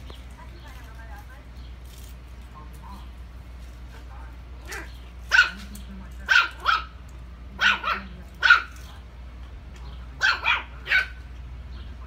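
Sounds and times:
puppy barking: 4.6s - 7.0s, 7.6s - 8.9s, 10.2s - 11.3s.

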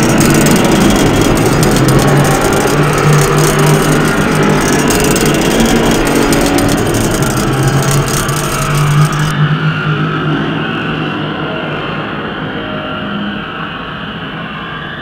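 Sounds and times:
low hum: 0.0s - 9.3s
engine-like droning: 0.0s - 12.2s.

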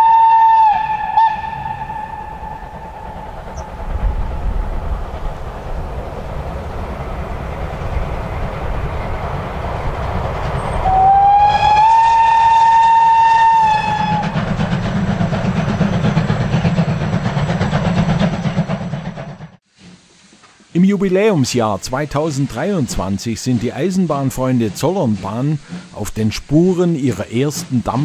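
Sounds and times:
steam whistle: 0.0s - 3.2s, 10.7s - 14.5s
steam locomotive rhythmic chuffing: 0.0s - 28.0s.

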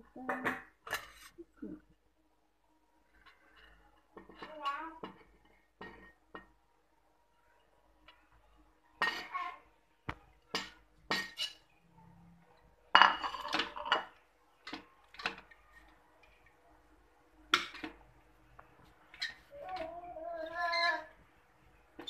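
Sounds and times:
metal ladle scraping metal pot: 11.2s - 11.6s.

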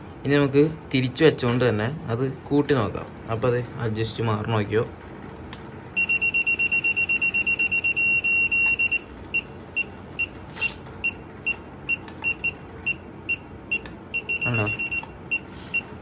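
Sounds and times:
low-battery alarm beeping: 6.0s - 10.4s, 11.0s - 16.0s.

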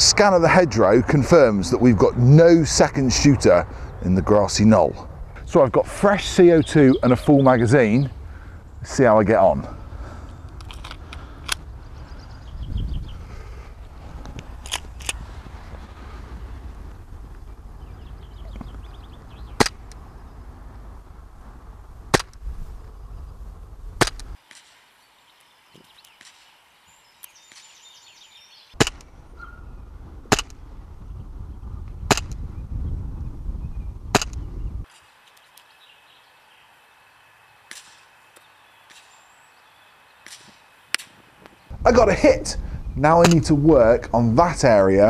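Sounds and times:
wind rumbling on microphone: 0.0s - 24.4s, 28.8s - 34.9s, 40.2s - 45.0s
bb pistol shots: 28.8s - 29.1s, 30.3s - 30.6s, 32.1s - 32.4s, 34.1s - 34.4s, 37.7s - 38.0s.

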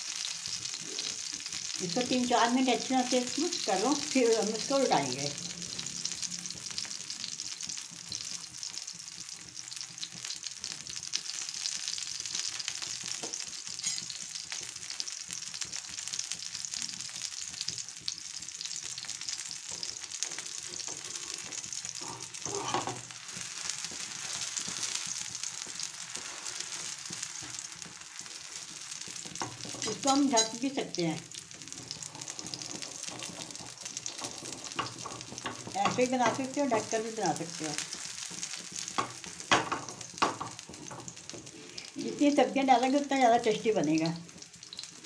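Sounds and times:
batter sizzling in a pan: 0.0s - 45.0s.

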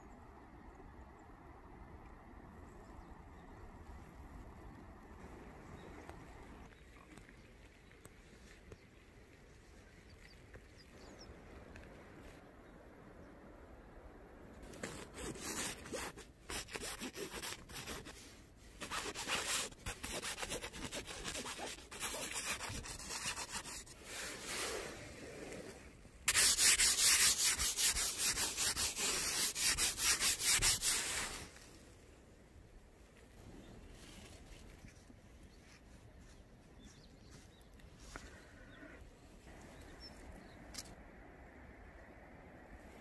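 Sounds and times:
rapid rubbing strokes: 14.8s - 18.2s, 18.8s - 25.4s, 26.3s - 31.5s.

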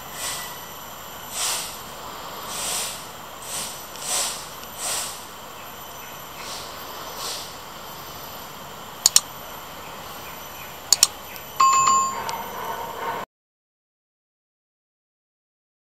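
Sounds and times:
background hiss: 0.0s - 11.7s
double mouse click: 9.0s - 9.2s, 10.9s - 11.4s
bright bell ding: 11.6s - 12.7s.

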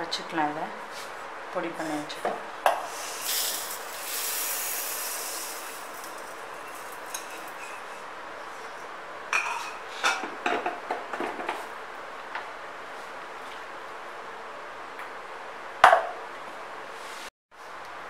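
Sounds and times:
grains pouring into steel jar: 3.2s - 7.7s.

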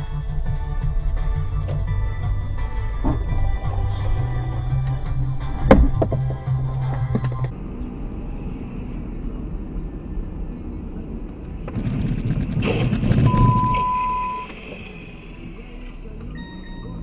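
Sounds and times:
vehicle and road noise: 0.0s - 17.0s
high beep: 13.3s - 14.6s, 16.3s - 17.0s.

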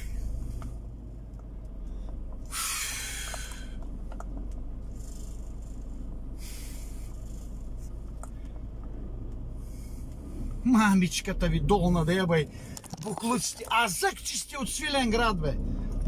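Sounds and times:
truck engine rumble: 0.0s - 16.0s
short hissing bursts: 2.5s - 3.6s, 6.4s - 7.2s.

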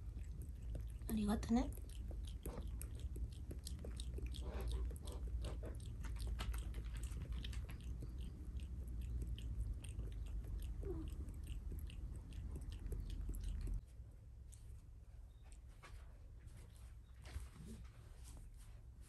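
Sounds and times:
cat lapping water: 0.0s - 13.8s
low steady hum: 0.0s - 19.0s.

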